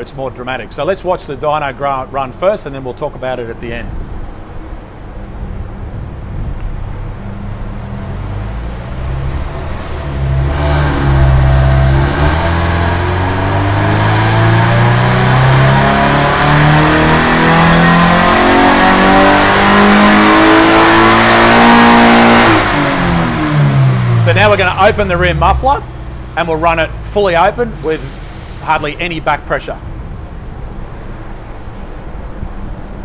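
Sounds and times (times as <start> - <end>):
car engine revving on a dyno: 5.3 - 27.1.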